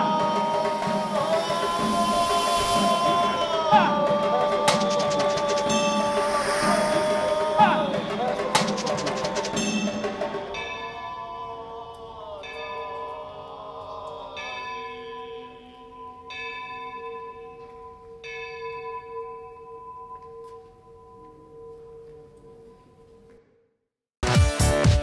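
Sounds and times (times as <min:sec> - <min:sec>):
church bells ringing: 0:07.8 - 0:13.5, 0:14.4 - 0:23.2.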